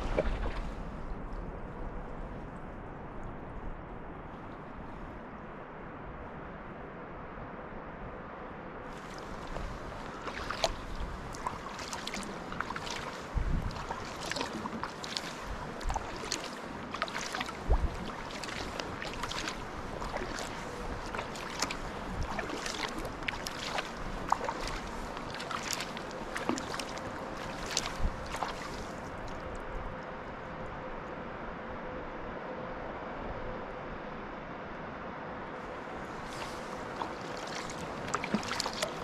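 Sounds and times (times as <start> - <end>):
paddle splashes: 0.0 - 1.5, 8.9 - 29.6, 35.6 - 39.0
wind bumps on microphone: 8.9 - 16.4, 17.2 - 25.2
water dripping off paddle: 9.0 - 29.5, 36.3 - 39.0.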